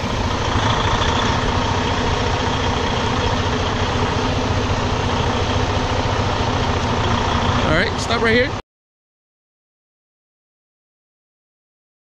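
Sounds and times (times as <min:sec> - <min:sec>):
truck diesel engine running: 0:00.0 - 0:08.6.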